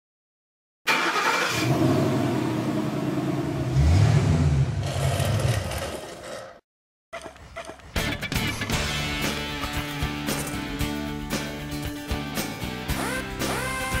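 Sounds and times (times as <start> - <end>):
car engine revving: 0.9 - 6.1
car engine starting and running: 0.9 - 6.1.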